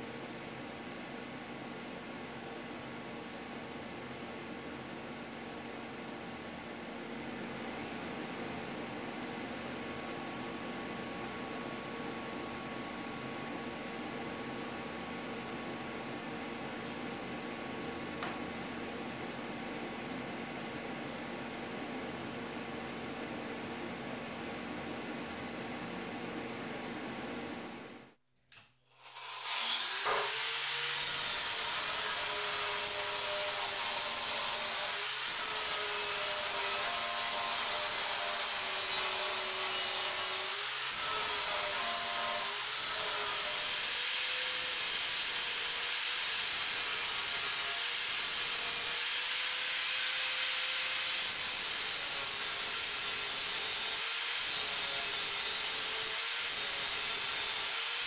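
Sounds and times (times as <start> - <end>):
angle grinder grinding metal: 29.0 - 58.0.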